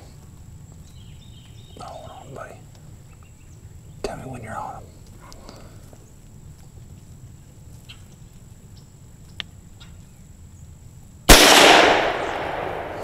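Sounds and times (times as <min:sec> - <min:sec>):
faint clicks: 0:04.9 - 0:08.4, 0:09.2 - 0:09.9
rifle shot echoing: 0:11.3 - 0:13.0.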